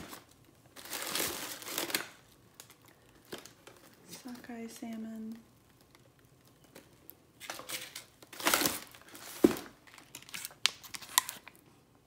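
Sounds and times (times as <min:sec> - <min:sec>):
plastic packaging crinkling: 0:00.0 - 0:11.6.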